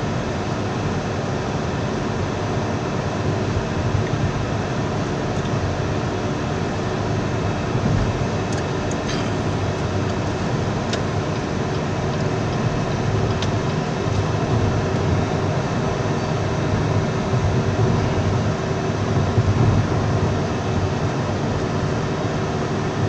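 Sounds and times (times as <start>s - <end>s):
tyres rumbling on road: 0.0s - 23.0s
wind noise: 7.2s - 23.0s.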